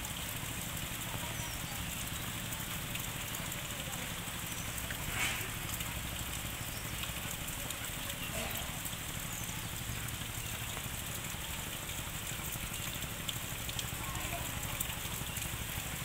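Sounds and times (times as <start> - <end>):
rain falling: 0.0 - 16.0.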